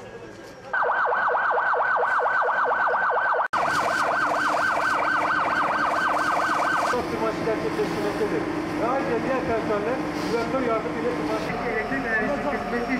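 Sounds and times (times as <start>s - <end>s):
emergency siren yelping: 0.7s - 7.0s.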